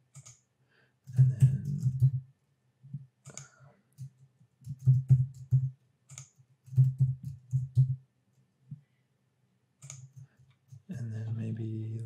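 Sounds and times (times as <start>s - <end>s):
mouse clicks: 6.1s - 7.0s, 9.8s - 10.8s.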